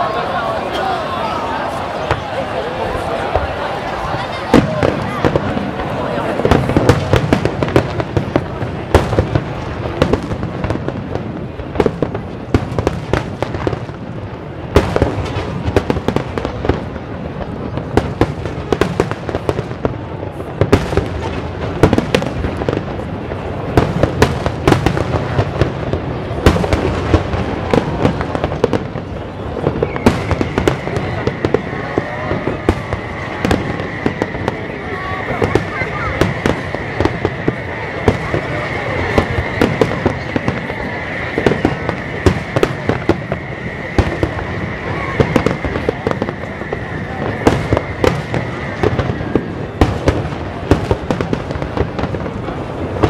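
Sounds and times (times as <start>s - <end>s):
fireworks bangs and crackles: 0.0s - 53.0s
steady high whistle: 29.7s - 49.8s.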